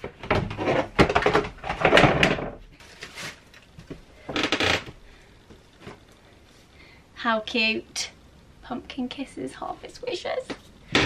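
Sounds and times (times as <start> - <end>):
rustling and clattering decorations: 0.0 - 6.7.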